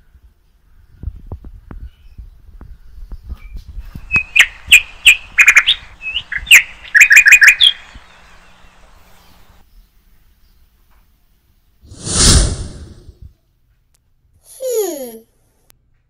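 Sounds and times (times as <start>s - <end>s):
small bird chirping: 0.7s - 10.7s.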